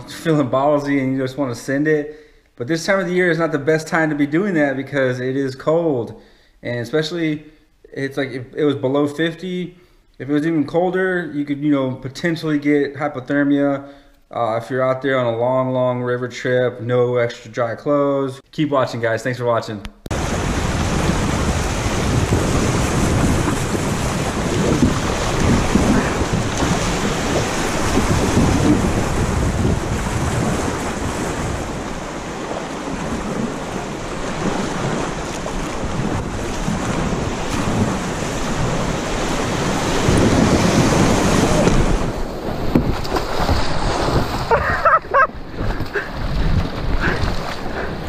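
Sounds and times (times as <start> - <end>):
wind buffeting microphone: 20.1 - 48.0.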